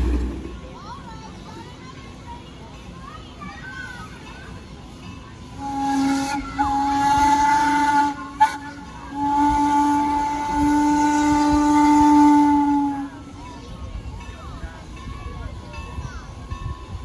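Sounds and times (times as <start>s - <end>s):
steam locomotive whistle blasts: 5.6s - 13.2s.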